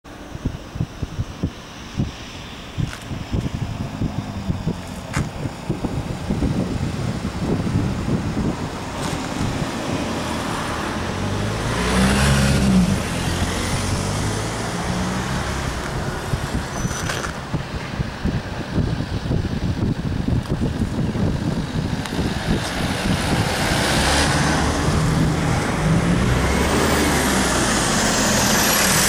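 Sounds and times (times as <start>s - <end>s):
wind buffeting microphone: 0.1s - 29.0s
vehicle driving past: 8.4s - 17.3s, 22.2s - 29.0s.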